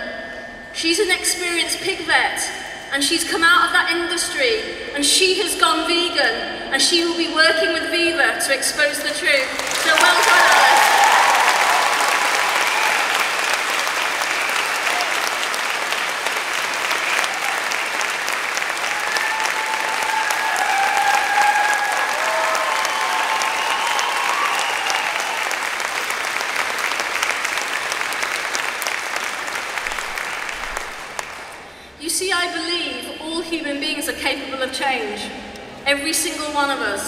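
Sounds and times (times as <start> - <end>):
audience applauding: 9.4 - 31.7.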